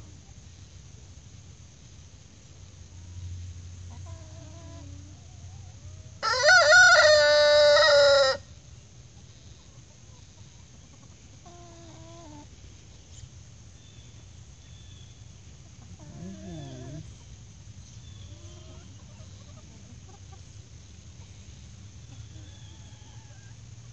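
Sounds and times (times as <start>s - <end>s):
chickens clucking: 2.5s - 23.9s
rooster crowing: 6.2s - 8.5s.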